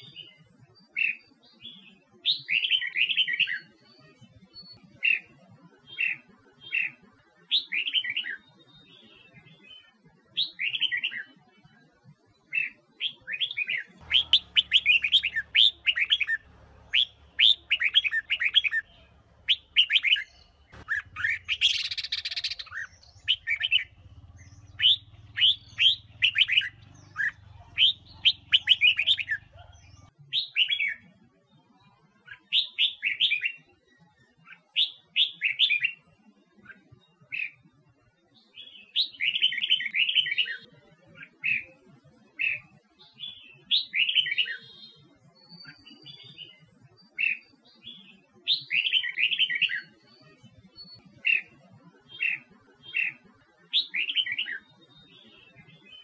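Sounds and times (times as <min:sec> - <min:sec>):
bird singing whistled phrases: 0:12.6 - 0:31.0.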